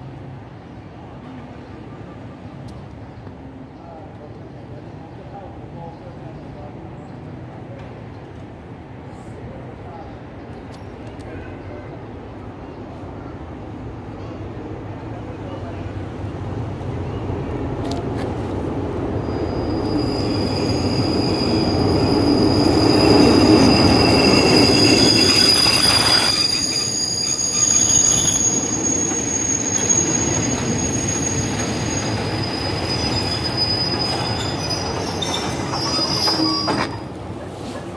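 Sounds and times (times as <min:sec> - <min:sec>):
train wheels rumbling on rails: 0:12.3 - 0:37.9
high squeals from running gear: 0:19.2 - 0:37.1.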